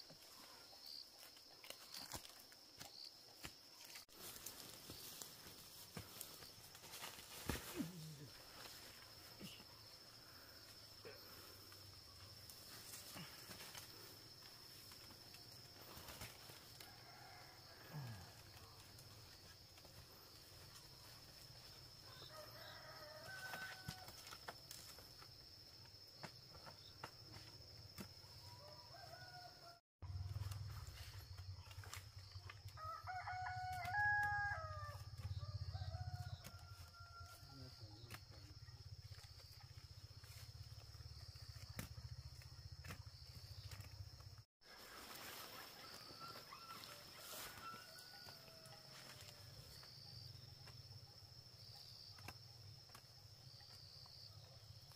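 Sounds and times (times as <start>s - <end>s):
rooster crowing: 16.8s - 18.4s, 22.0s - 24.2s, 32.8s - 37.5s, 45.6s - 49.1s.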